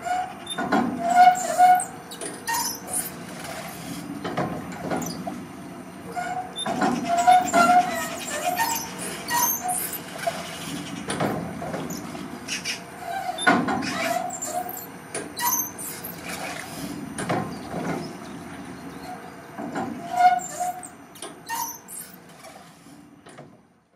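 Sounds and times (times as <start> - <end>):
rusty metal joints creaking: 6.1 - 12.1.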